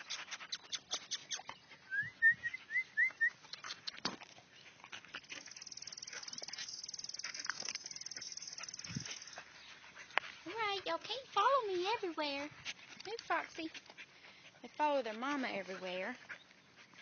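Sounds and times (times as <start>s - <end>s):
puppies squeaking: 0.0s - 9.7s
ticking and rustling of movement: 3.4s - 17.0s.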